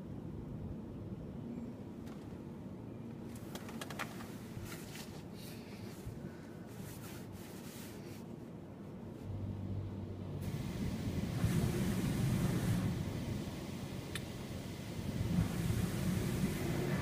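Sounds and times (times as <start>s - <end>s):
low steady machine noise: 4.4s - 17.0s
water spray spattering on car: 10.4s - 17.0s.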